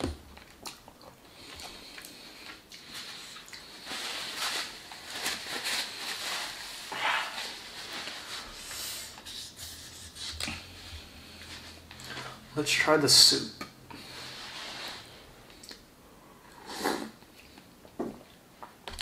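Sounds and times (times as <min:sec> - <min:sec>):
paper napkin rustling: 0:03.0 - 0:10.8.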